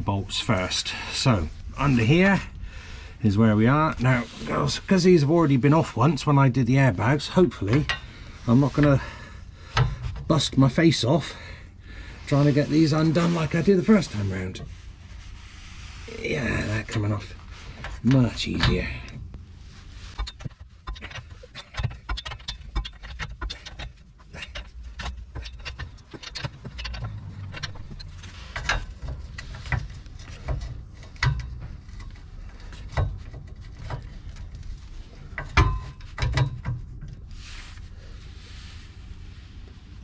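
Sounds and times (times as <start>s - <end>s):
low rumble: 23.9s - 35.3s.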